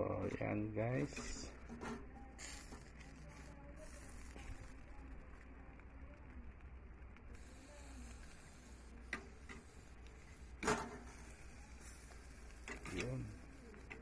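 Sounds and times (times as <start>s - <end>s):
metal tongs clicking on grill grate: 10.6s - 14.0s.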